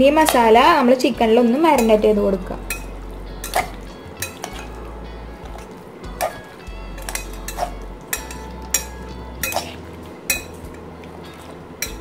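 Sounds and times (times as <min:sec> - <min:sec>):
steady low hum: 0:00.0 - 0:12.0
utensils clinking against glass bowl: 0:01.7 - 0:04.8, 0:05.5 - 0:12.0.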